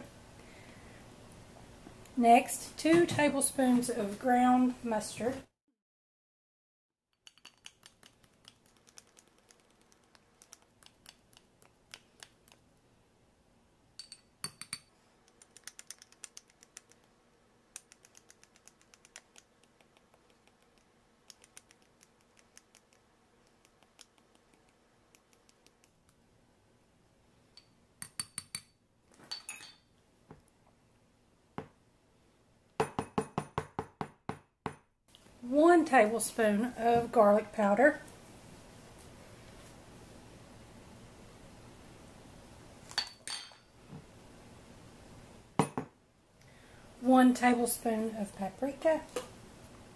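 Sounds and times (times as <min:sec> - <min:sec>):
metal spoon clicking and scraping: 0:07.2 - 0:12.3, 0:14.0 - 0:17.0
glass jar knocking on countertop: 0:32.8 - 0:34.8, 0:45.6 - 0:45.9.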